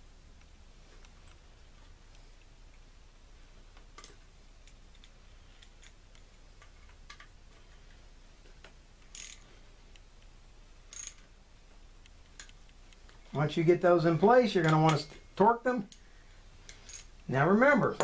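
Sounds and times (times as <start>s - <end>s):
ratchet wrench clicking: 9.1s - 9.4s, 10.9s - 11.2s.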